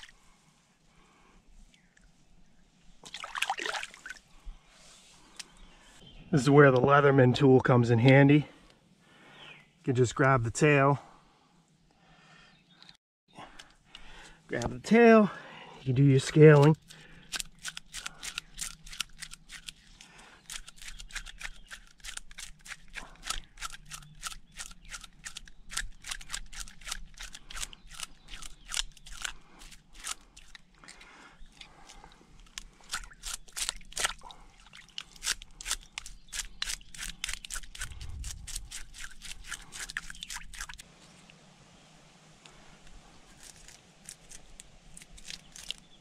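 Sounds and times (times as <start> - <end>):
knife scraping fish scales: 35.0 - 40.8.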